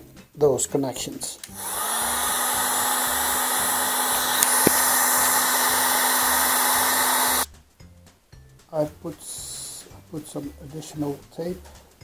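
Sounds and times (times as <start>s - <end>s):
heat gun blowing: 1.5s - 7.5s.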